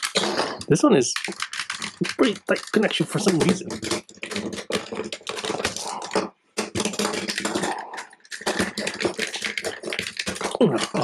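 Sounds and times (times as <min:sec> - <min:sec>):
plastic toy parts clicking and rattling: 0:00.0 - 0:11.0.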